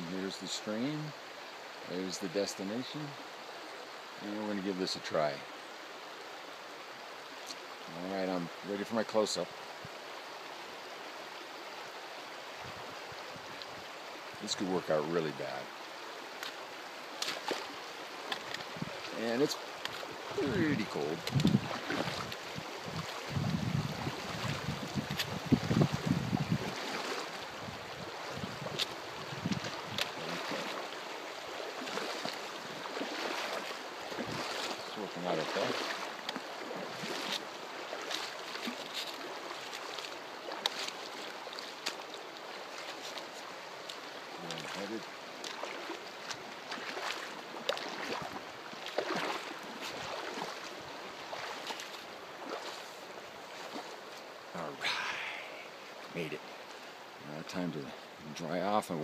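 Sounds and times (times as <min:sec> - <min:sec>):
creek running over gravel: 0:00.0 - 0:59.0
person wading through water: 0:15.4 - 0:57.2.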